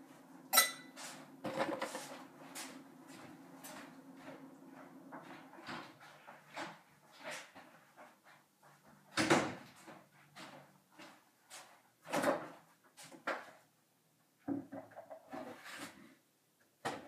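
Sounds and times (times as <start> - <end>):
knocks and handling clatters: 1.4 - 2.1.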